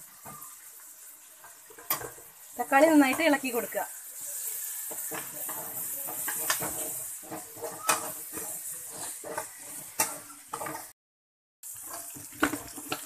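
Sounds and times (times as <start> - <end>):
vegetables sizzling in oil: 0.0 - 11.0, 11.6 - 13.0
spatula scraping a metal pan: 1.5 - 11.0.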